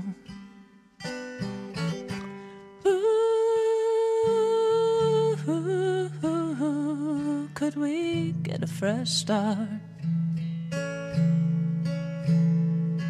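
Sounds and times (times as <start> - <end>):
acoustic guitar notes: 0.0 - 13.0.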